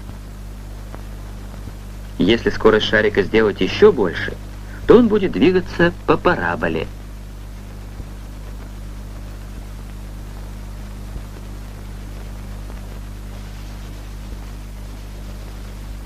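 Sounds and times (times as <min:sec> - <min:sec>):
even hiss: 0:00.0 - 0:16.0
steady low hum: 0:00.0 - 0:16.0
faint clicks: 0:00.8 - 0:01.8.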